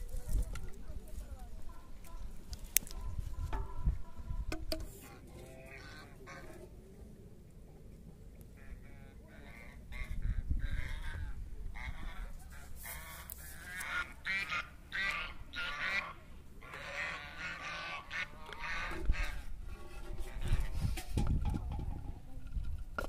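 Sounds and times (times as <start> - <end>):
waterfowl honking: 2.9 - 6.7, 8.5 - 20.7.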